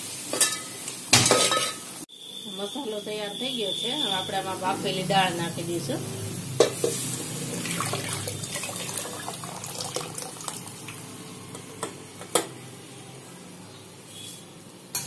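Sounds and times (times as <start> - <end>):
liquid pouring into metal pot: 7.6 - 10.9.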